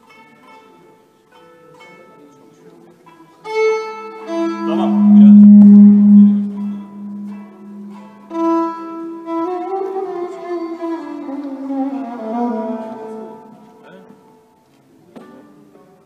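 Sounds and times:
violin bowed notes: 3.4 - 14.4.

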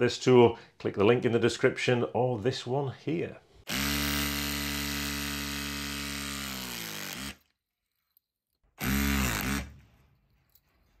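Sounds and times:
hydraulic crimper motor running: 3.7 - 7.4, 8.8 - 9.7.

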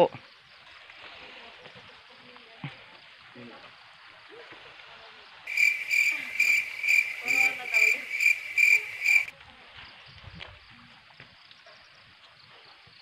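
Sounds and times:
high cricket chirp: 0.0 - 9.3.

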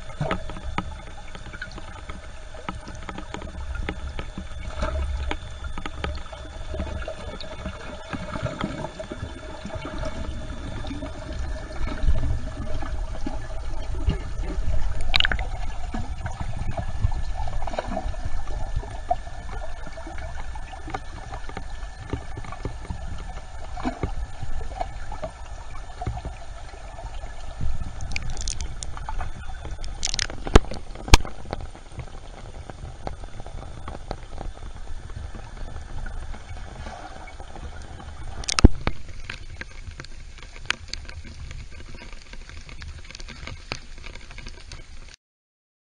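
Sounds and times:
water sloshing and gurgling: 0.0 - 45.2
sharp clicks: 15.0 - 15.5, 28.0 - 29.1, 29.7 - 31.6, 38.4 - 39.7.

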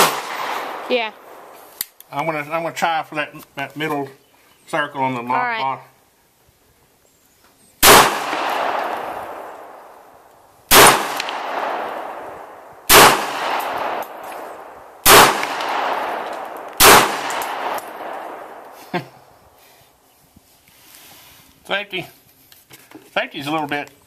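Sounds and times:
pistol shots: 0.0 - 1.5, 7.8 - 9.9, 10.7 - 18.7.

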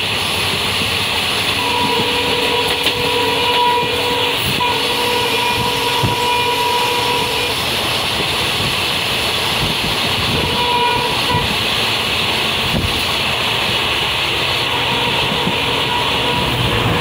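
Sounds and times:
rush of wind: 0.0 - 17.0
wheel-on-rail noise: 0.0 - 17.0.

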